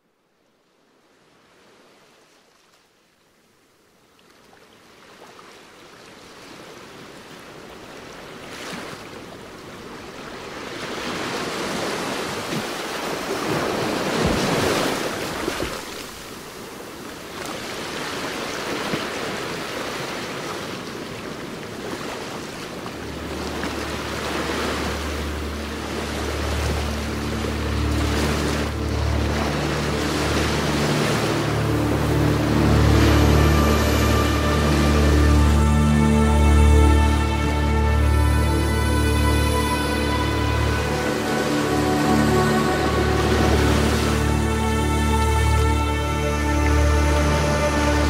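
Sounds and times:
wind: 0:00.0 - 0:48.0
ocean surf: 0:05.2 - 0:48.0
low steady hum: 0:22.9 - 0:48.0.

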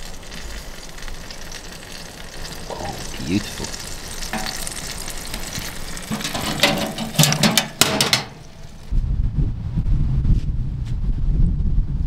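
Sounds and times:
chicken sizzling: 0:00.0 - 0:08.9
wind rumble on microphone: 0:08.8 - 0:12.0.

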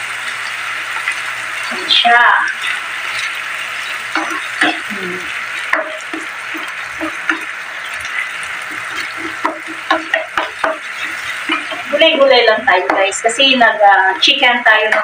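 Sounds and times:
food sizzling in a pan: 0:00.0 - 0:15.0
spoon scraping and tapping pan: 0:04.1 - 0:04.9, 0:05.6 - 0:12.2.

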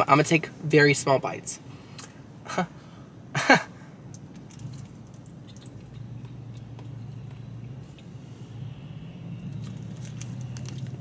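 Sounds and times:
low steady hum: 0:00.0 - 0:11.0
chewing: 0:04.2 - 0:08.1
plastic wrap crinkling: 0:09.5 - 0:11.0.

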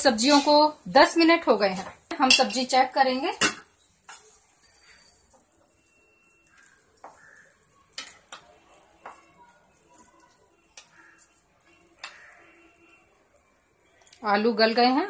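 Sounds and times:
utensils clicking against pan: 0:01.7 - 0:05.8, 0:06.5 - 0:13.1.

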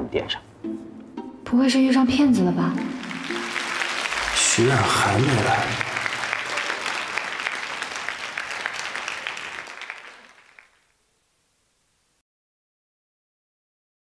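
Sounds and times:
audience applause: 0:02.8 - 0:10.9.

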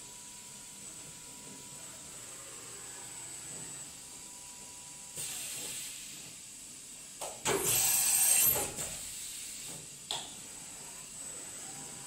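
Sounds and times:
compressed air hiss: 0:08.9 - 0:09.8.

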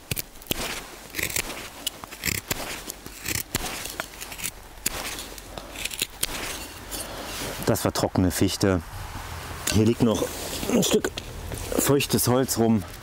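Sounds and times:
knife slicing dry wood: 0:00.0 - 0:07.7.

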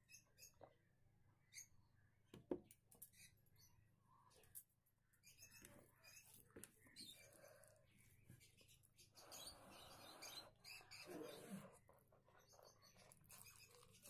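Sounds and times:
fingers squishing rice: 0:10.8 - 0:14.0.

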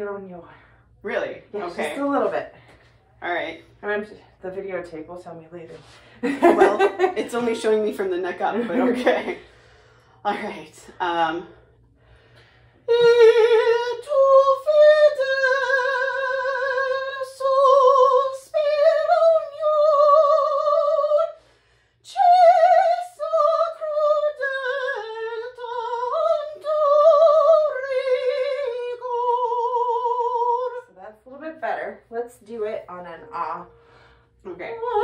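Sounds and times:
woman singing classical: 0:12.9 - 0:21.4, 0:22.0 - 0:30.9, 0:33.2 - 0:35.0.

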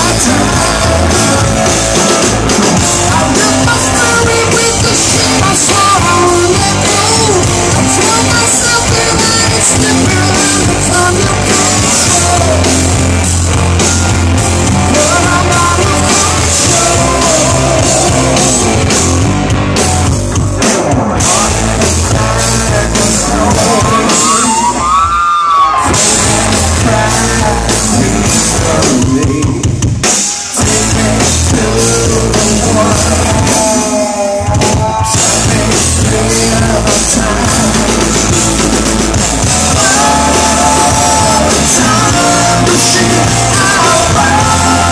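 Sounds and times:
person singing: 0:00.0 - 0:13.3, 0:14.7 - 0:19.2, 0:20.7 - 0:24.9, 0:25.6 - 0:29.8, 0:30.6 - 0:38.7, 0:39.4 - 0:44.9
bass guitar: 0:00.0 - 0:44.9
drum kit: 0:00.0 - 0:44.9
electric guitar: 0:00.0 - 0:44.9.

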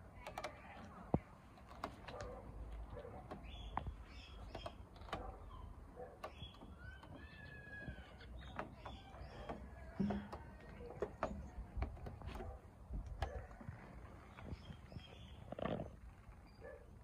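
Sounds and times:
birds chirping and calling: 0:03.0 - 0:11.9, 0:13.2 - 0:16.8.

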